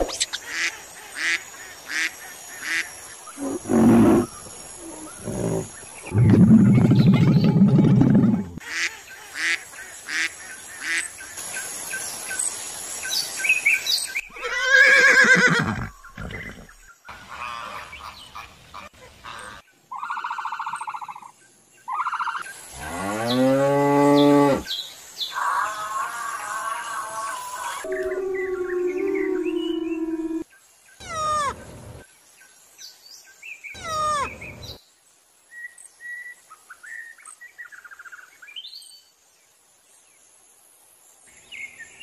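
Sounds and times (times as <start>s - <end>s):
wavering animal call: 25.4s - 30.4s, 31.0s - 31.8s
long lowing call: 27.7s - 30.4s.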